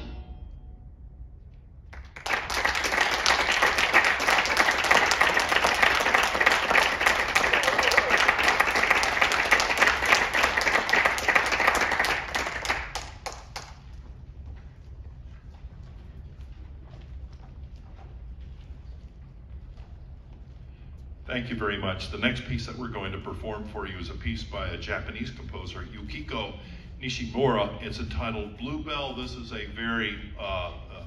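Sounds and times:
audience applauding: 1.9s - 14.0s.

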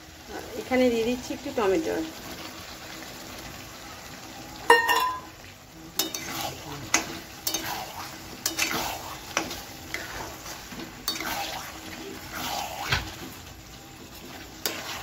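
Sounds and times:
sauce sizzling: 0.0s - 15.0s
spatula scraping a pan: 5.9s - 15.0s.

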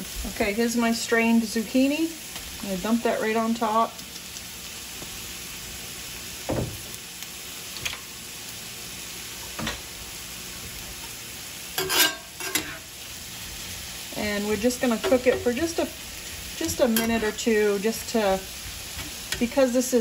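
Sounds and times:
vegetables sizzling in a skillet: 0.0s - 20.0s
metal spatula scraping pan: 11.8s - 12.9s, 16.6s - 17.5s.

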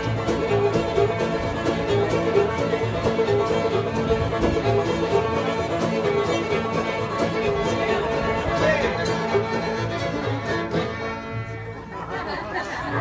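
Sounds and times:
acoustic string band playing: 0.0s - 13.0s.

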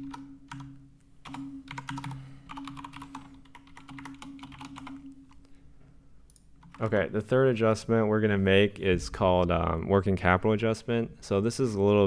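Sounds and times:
keyboard typing clicks: 0.0s - 5.4s.

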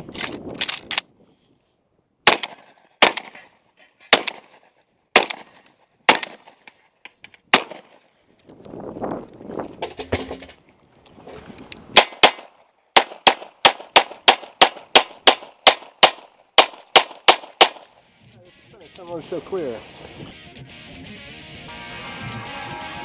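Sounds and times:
gun handling noise: 0.0s - 1.1s, 2.4s - 10.7s
pistol shots: 2.2s - 3.5s, 4.1s - 6.6s, 7.5s - 8.0s, 12.0s - 17.9s
shotgun shots: 2.2s - 3.5s, 4.1s - 6.6s, 7.5s - 8.0s, 12.0s - 17.9s.

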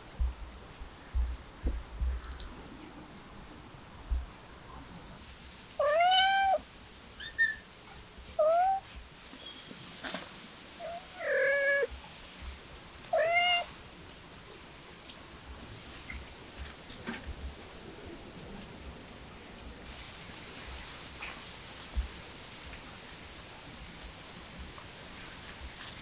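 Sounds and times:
kitten meowing: 5.8s - 6.6s, 8.4s - 8.8s, 10.8s - 11.9s, 13.1s - 13.7s.

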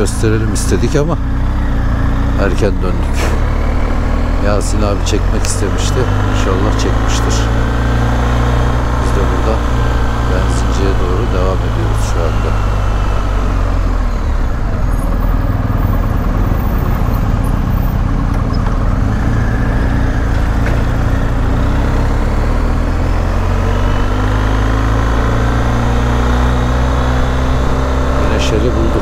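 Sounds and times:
motorcycle engine running: 0.0s - 29.0s.

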